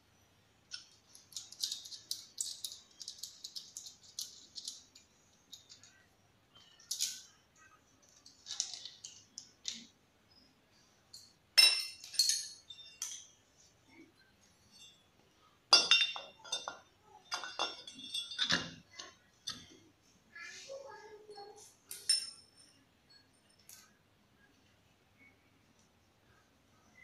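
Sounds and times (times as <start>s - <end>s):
metal hardware clinking: 0.7s - 6.0s, 6.6s - 7.4s, 8.0s - 9.9s, 11.1s - 13.4s, 15.7s - 19.8s, 21.9s - 22.8s.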